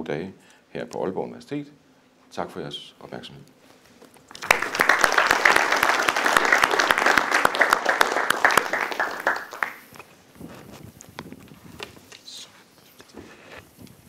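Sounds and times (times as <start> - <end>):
audience applauding: 4.3 - 9.9.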